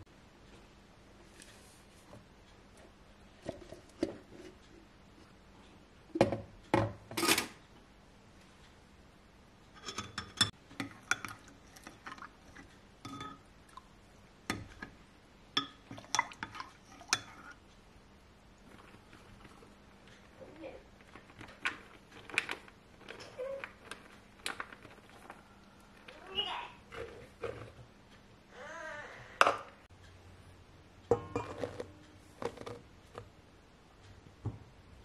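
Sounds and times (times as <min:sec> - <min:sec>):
metal spoon stirring in glass jug: 0:15.6 - 0:17.6, 0:31.1 - 0:32.7.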